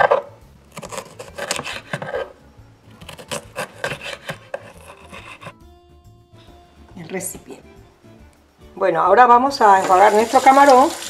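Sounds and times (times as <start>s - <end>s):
knife slicing pepper on board: 0.0s - 2.3s, 2.9s - 5.6s.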